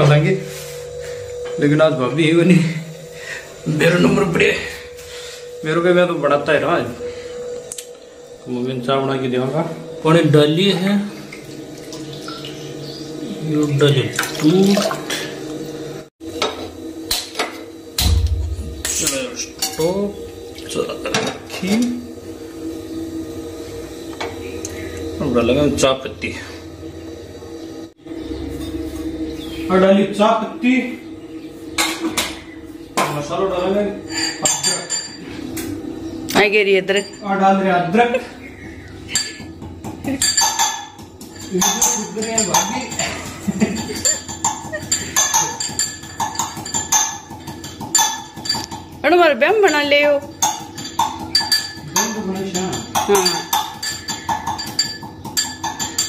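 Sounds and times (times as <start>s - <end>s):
gas flame rumble: 15.0s - 37.1s
metal pestle clinking in mortar: 40.2s - 49.0s, 49.7s - 56.0s.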